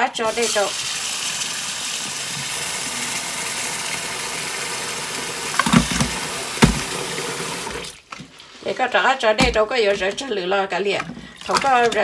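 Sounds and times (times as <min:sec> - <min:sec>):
tap water pouring into sink: 0:00.2 - 0:08.4
dull knocks: 0:05.6 - 0:07.0.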